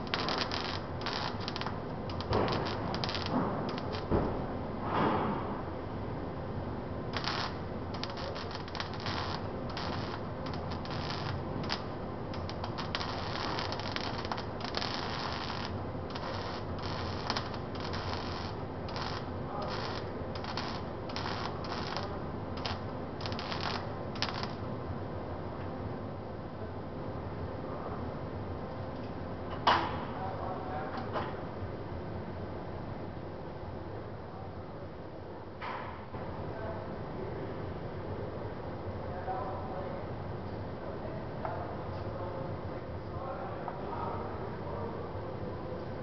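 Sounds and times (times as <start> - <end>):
welding arc crackling: 0.0 - 4.5, 7.1 - 24.7.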